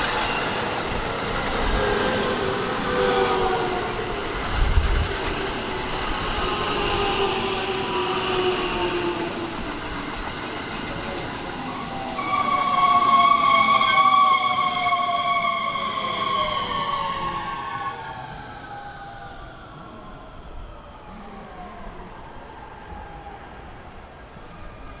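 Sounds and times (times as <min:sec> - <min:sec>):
train wheel rumble: 0:00.0 - 0:19.1
electric train inverter whine: 0:00.0 - 0:25.0
loud steady high tone: 0:11.4 - 0:19.6.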